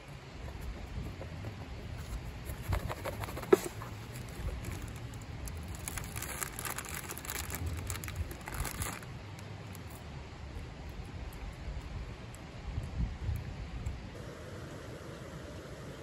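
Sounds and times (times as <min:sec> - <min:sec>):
snack packet crinkling: 0:02.8 - 0:10.0.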